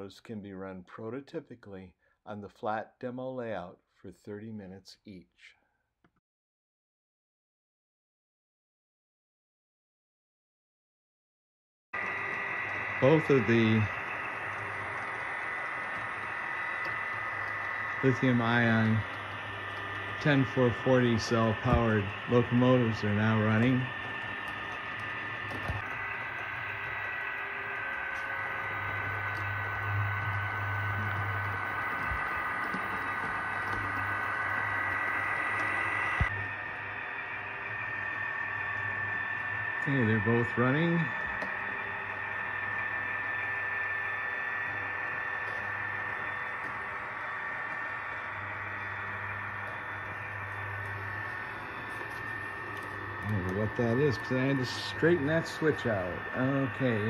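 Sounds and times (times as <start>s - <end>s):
high whine: 12.0s - 57.0s
low hum: 12.0s - 57.0s
model locomotive engine sound: 12.0s - 57.0s.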